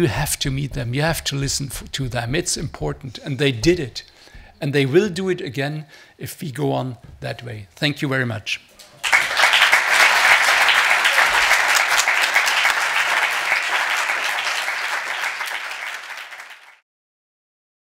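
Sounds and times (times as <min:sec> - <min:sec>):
audience applauding: 0:09.0 - 0:16.8.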